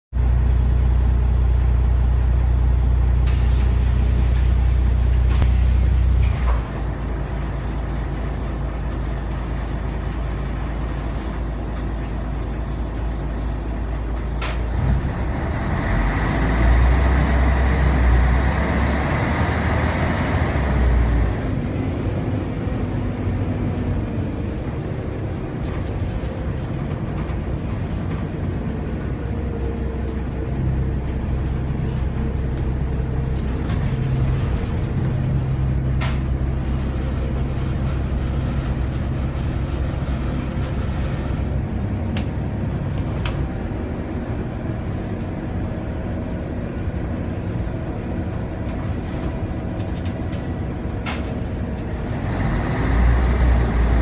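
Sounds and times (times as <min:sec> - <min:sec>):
diesel bus engine drone: 0:00.1 - 0:54.0
compressed air hissing: 0:03.3 - 0:06.2.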